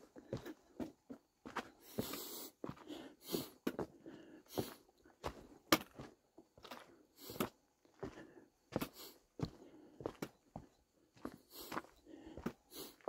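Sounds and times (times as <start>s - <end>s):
footsteps on dirt trail: 0.0s - 13.0s.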